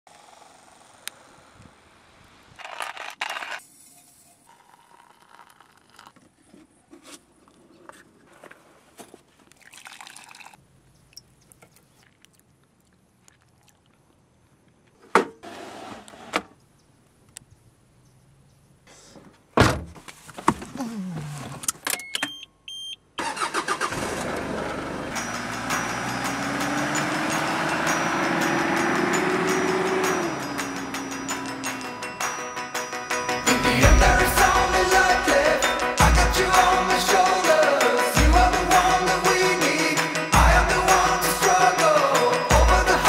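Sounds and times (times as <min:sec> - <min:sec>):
van engine starting and running: 0:00.1 - 0:02.6, 0:23.2 - 0:32.5
short electronic beeps: 0:22.0 - 0:23.0.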